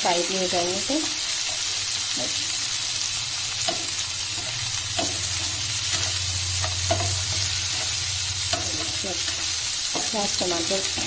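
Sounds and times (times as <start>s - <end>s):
onions sizzling in oil: 0.0s - 11.0s
spatula knocking pan: 3.6s - 11.0s.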